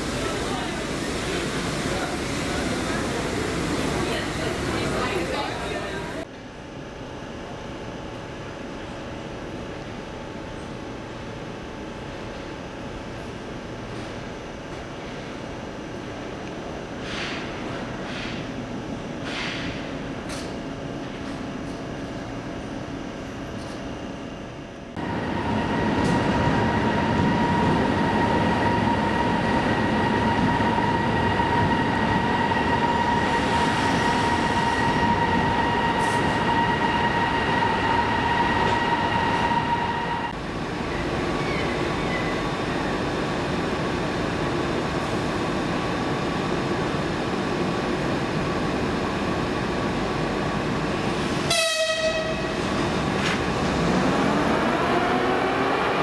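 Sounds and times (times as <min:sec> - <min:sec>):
electric locomotive approaching whine: 0:00.0 - 0:56.0
high locomotive whine: 0:00.0 - 0:56.0.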